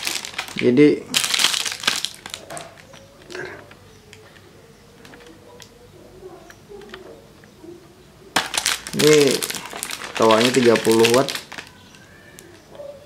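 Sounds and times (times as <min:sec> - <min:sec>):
plastic wrapping rustling: 0:00.0 - 0:05.8, 0:08.3 - 0:12.8.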